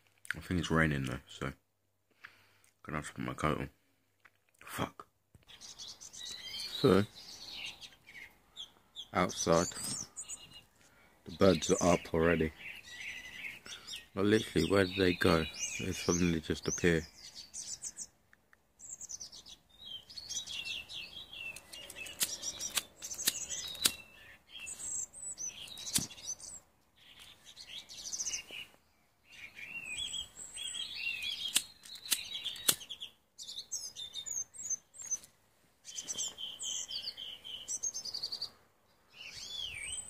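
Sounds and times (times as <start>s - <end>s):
songbirds chirping and twittering: 0.0s - 40.0s
sharp ticks: 21.5s - 24.0s, 31.5s - 32.9s.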